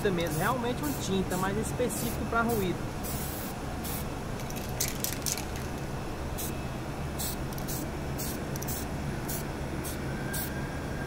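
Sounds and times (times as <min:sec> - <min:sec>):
aerosol can spraying: 0:03.0 - 0:04.0, 0:07.2 - 0:09.4.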